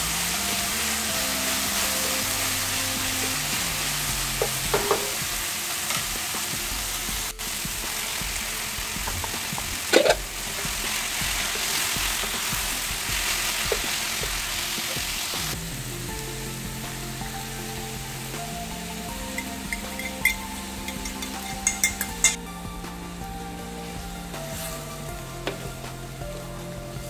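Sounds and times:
soft background music: 0:00.0 - 0:27.0
vegetables sizzling in a wok: 0:00.0 - 0:27.0
spatula clattering against pan: 0:19.4 - 0:22.4.

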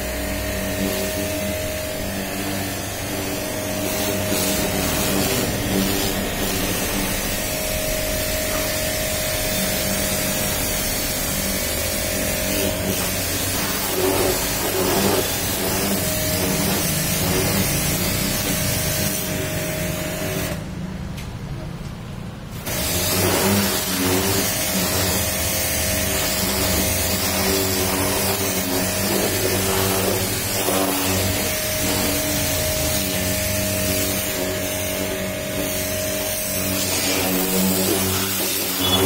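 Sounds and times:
pressure washer motor hum: 0:00.0 - 0:21.7, 0:22.4 - 0:39.0
water jet hissing: 0:02.9 - 0:20.6, 0:22.7 - 0:39.0.

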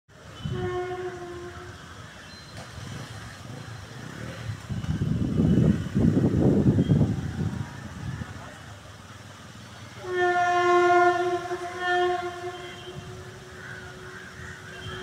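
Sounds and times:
horn note: 0:00.4 - 0:01.8, 0:10.0 - 0:13.4.

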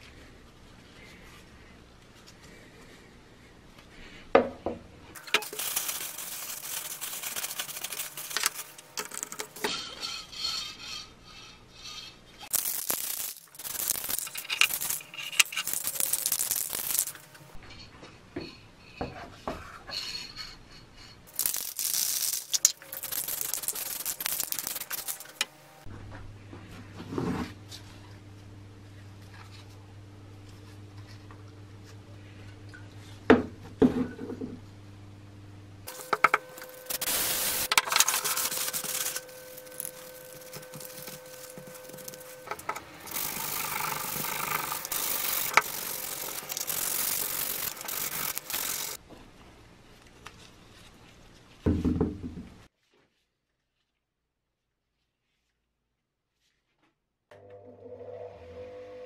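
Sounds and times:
aerosol spray can hissing: 0:05.4 - 0:08.8, 0:35.9 - 0:49.0
low steady hum: 0:20.2 - 0:51.6.

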